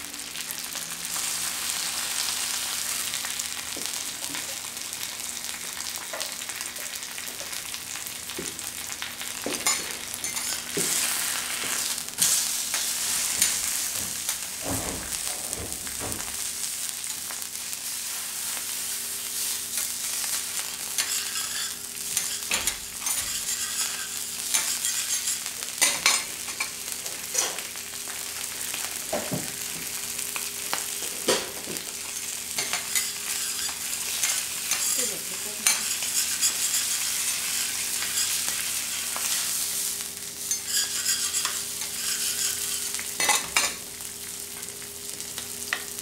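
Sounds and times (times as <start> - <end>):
food sizzling on a griddle: 0.0 - 46.0.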